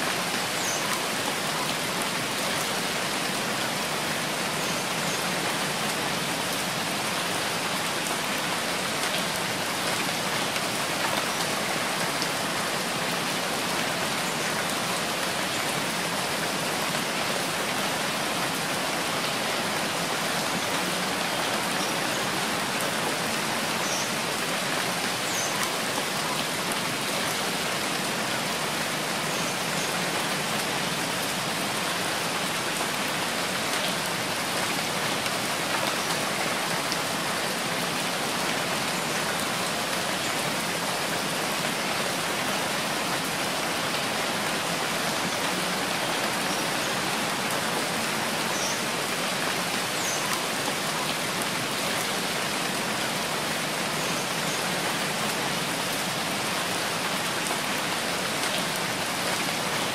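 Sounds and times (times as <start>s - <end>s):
steady rain: 0.0s - 59.9s.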